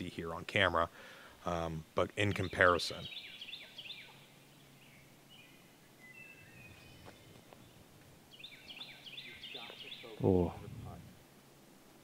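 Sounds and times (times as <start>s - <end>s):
outdoor background noise: 0.0s - 12.0s
bird chirping: 2.2s - 10.9s.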